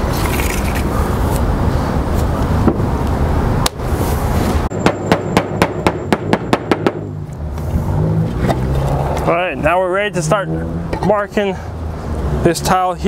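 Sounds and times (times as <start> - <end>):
hammer blows: 4.7 - 7.2.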